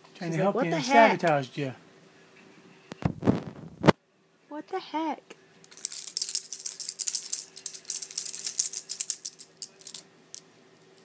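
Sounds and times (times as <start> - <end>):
plastic toy keys rattling: 5.7 - 11.0.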